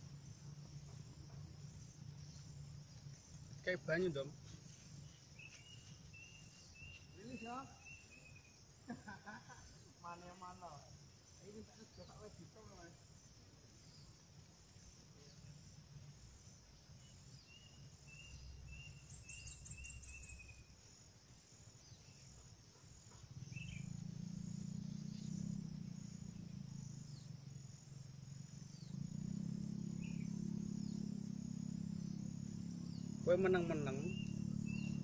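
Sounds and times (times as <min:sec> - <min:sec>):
insects chirping: 0:00.0 - 0:35.0
bird calls: 0:00.8 - 0:08.6, 0:17.0 - 0:20.7, 0:21.8 - 0:27.4, 0:28.6 - 0:35.0
low hum: 0:23.3 - 0:35.0.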